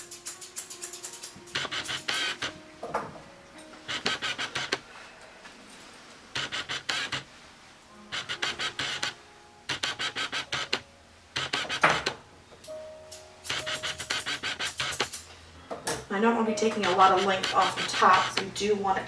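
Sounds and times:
scissors snipping dog fur: 0.0 - 2.5, 13.4 - 15.2, 16.7 - 18.6.

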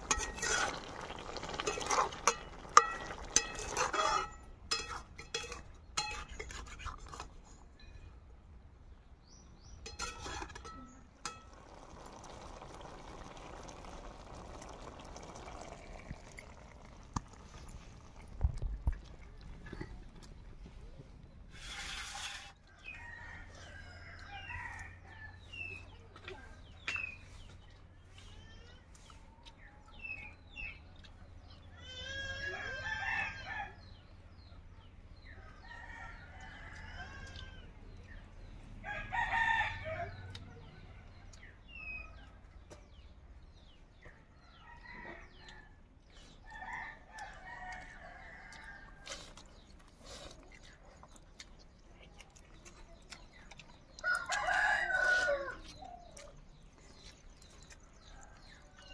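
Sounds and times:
small birds chirping: 22.8 - 32.6, 39.8 - 58.9
rooster crowing: 54.0 - 55.7.

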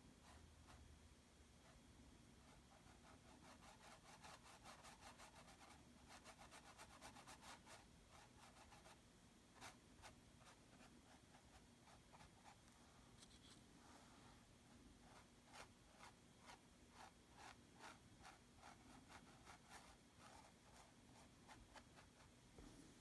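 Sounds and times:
paintbrush strokes on canvas: 9.6 - 23.0.

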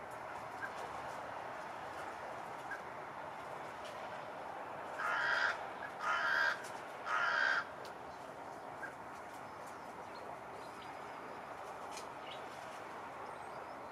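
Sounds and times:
crow cawing: 5.0 - 7.7.

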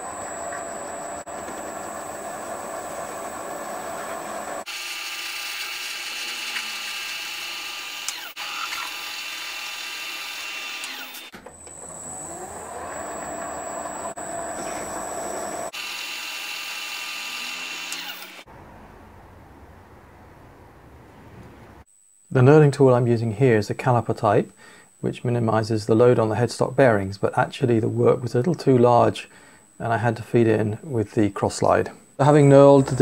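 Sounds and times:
lathe tool cutting metal: 0.0 - 11.3, 12.1 - 18.5
lathe motor running: 0.0 - 18.5.

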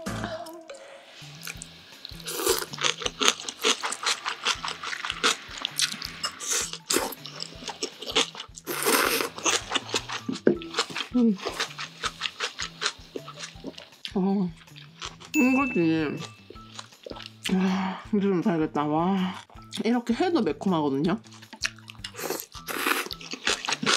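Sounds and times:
slurping noodles: 1.2 - 13.9, 22.1 - 23.9
wet chewing: 1.4 - 15.3, 16.2 - 17.6, 21.2 - 23.9.

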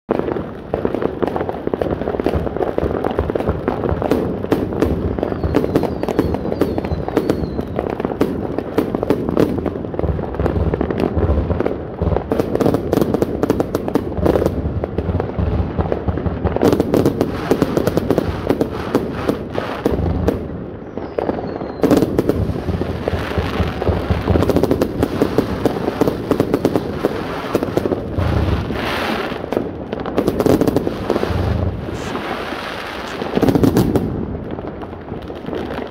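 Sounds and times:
firework barrage bangs and crackle: 0.1 - 35.9
falling firework whistles: 4.5 - 8.5, 16.6 - 29.5, 30.4 - 34.2.

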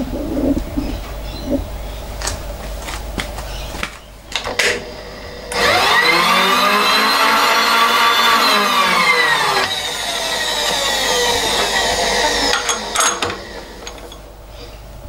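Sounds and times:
milling machine motor winding down: 4.5 - 14.3.

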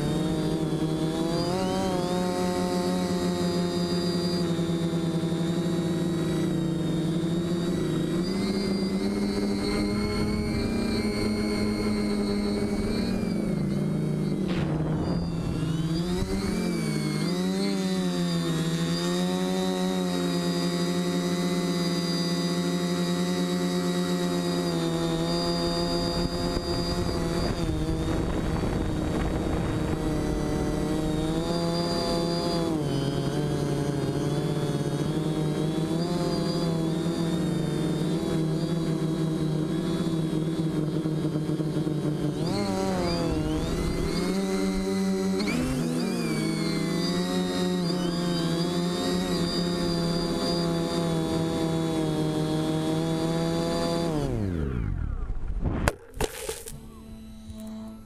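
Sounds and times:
drone motors whining: 0.0 - 58.0
air rushing over camera: 14.3 - 16.4.

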